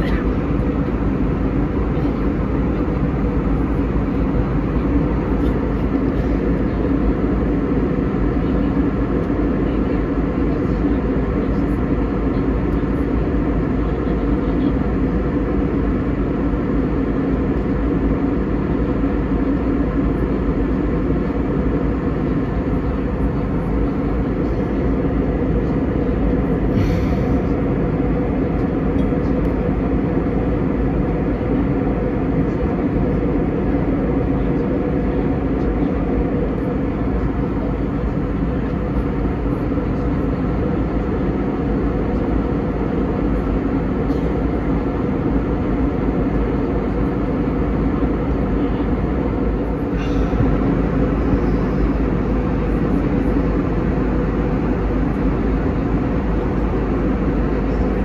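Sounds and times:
airplane cabin engine drone: 0.0 - 58.0
rushing air: 26.7 - 27.4.

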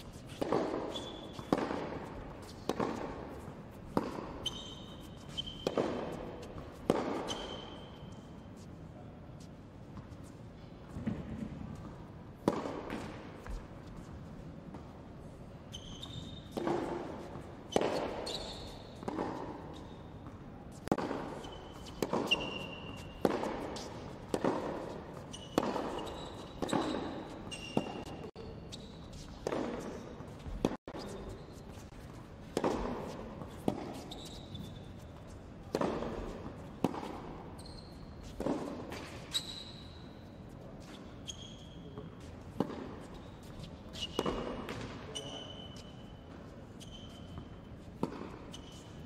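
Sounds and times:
tennis ball bouncing: 0.0 - 8.3, 10.9 - 15.0, 16.0 - 28.3, 29.1 - 39.3, 42.5 - 45.0, 47.1 - 48.9
rackets striking tennis ball: 0.0 - 8.6, 10.9 - 15.0, 16.0 - 28.3, 29.1 - 37.6, 38.2 - 39.9, 42.4 - 46.0, 47.8 - 49.0
shoes squeaking on court: 0.0 - 49.0.

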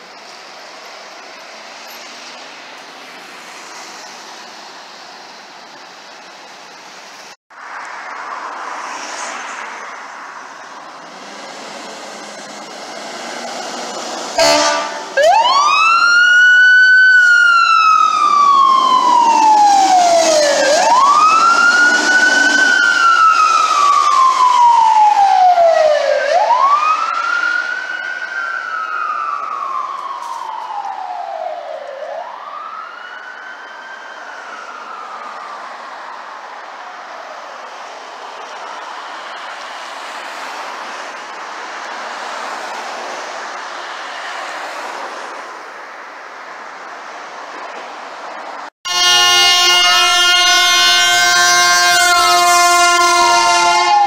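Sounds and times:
fire engine siren wailing: 10.6 - 41.1, 48.8 - 54.0
loud horn blast: 14.4 - 15.6, 48.8 - 54.0.

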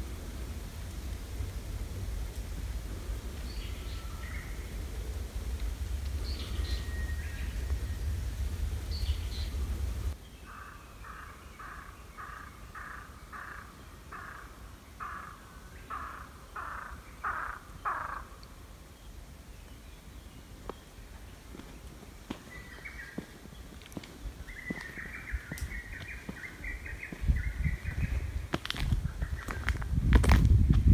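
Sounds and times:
wind rumble on microphone: 0.0 - 10.2, 22.5 - 30.9
bird calling in series: 10.3 - 18.6.

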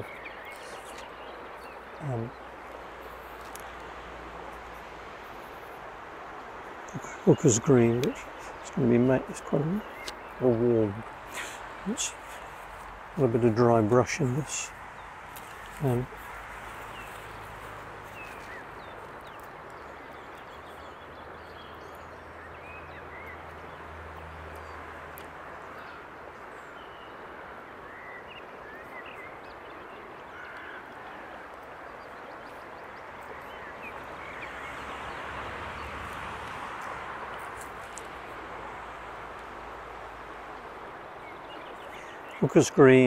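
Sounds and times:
steady background hiss: 0.0 - 43.0
faint bird calls: 24.6 - 35.0, 40.5 - 43.0.

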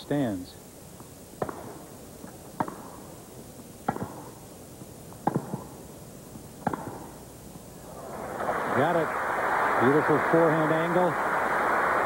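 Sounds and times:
tennis ball struck by racquets: 1.4 - 1.9, 2.6 - 3.1, 3.8 - 4.4, 5.2 - 5.8, 6.6 - 7.2.

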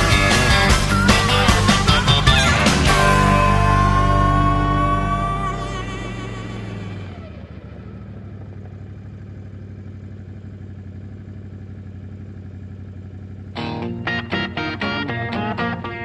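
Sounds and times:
music: 0.0 - 6.9, 13.6 - 16.0
guitar song: 0.0 - 7.3, 13.5 - 16.0
atv engine running: 0.0 - 16.0.

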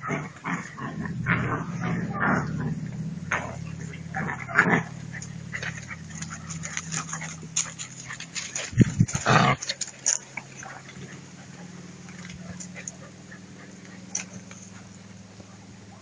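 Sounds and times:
scratching and scuffling clicks: 2.8 - 15.5
puppies whimpering and yipping: 4.1 - 16.0.

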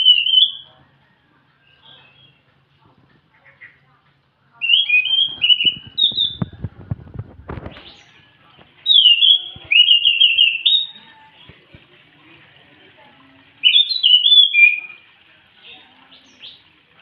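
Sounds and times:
thrush singing whistled phrases: 0.0 - 0.7, 4.6 - 6.6, 8.8 - 11.2, 13.6 - 15.1
knocks and rustles: 5.4 - 8.8.

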